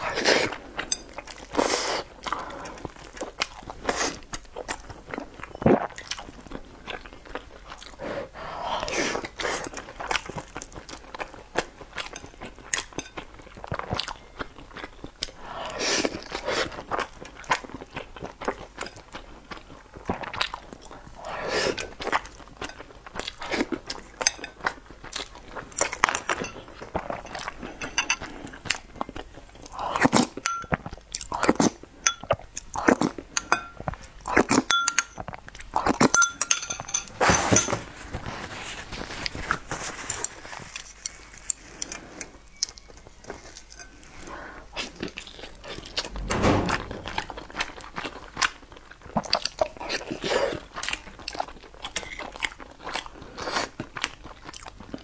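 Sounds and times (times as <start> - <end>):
person chewing and crunching: 0.0 - 8.0, 8.8 - 37.3, 47.4 - 55.0
chopsticks clinking on ceramic bowl: 26.0 - 28.3, 30.4 - 30.8, 32.0 - 32.4, 33.3 - 34.0, 34.6 - 35.2, 36.0 - 37.8.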